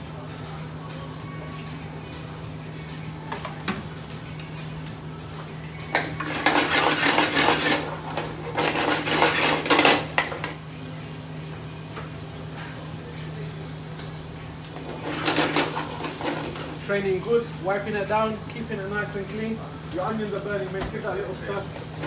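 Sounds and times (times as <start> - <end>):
kitchen extraction hum: 0.0 - 22.0
metal pans clattering: 5.9 - 10.6, 14.8 - 16.8.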